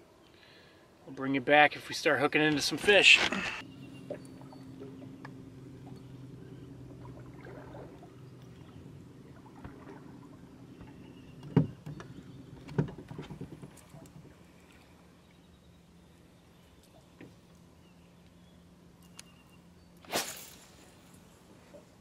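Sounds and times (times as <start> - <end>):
boat motor humming: 3.2 - 20.0
sharp knocks on boat: 10.8 - 13.8.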